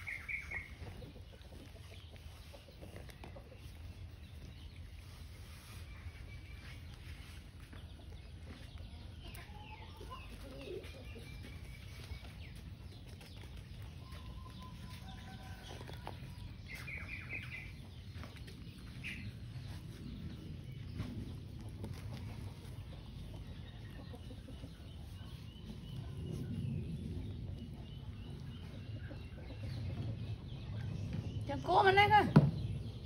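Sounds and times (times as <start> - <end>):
animal chirps and clucks: 0.0 - 33.0
low background rumble: 11.0 - 33.0.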